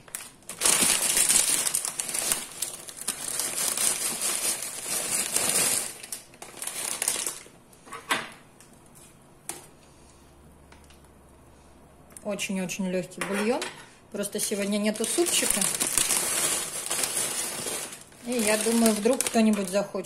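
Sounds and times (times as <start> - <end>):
plastic packaging crinkling: 0.0 - 7.6, 14.4 - 20.0.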